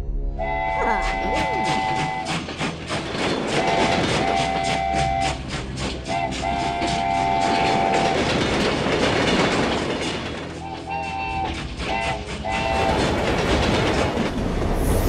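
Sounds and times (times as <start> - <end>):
locomotive horn blasts: 0.3 - 2.4, 3.5 - 8.2, 10.6 - 13.0
train wheels clickety-clack: 1.0 - 15.0.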